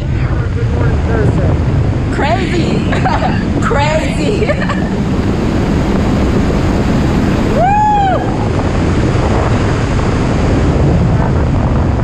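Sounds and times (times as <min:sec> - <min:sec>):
wind rushing over microphone: 0:00.0 - 0:12.0
person whooping: 0:07.6 - 0:08.4.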